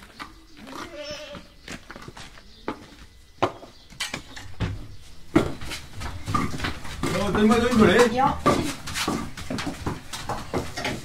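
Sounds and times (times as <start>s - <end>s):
footsteps on gravel: 0.0s - 11.0s
goat bleating: 0.6s - 1.6s.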